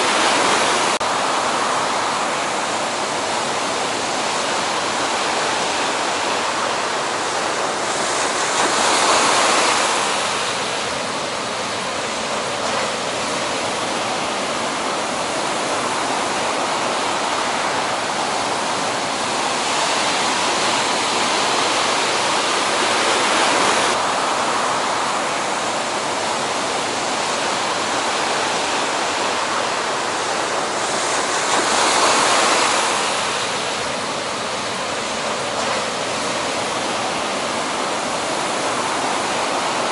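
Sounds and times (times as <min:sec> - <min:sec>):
heavy ocean surf breaking: 0:00.0 - 0:39.9.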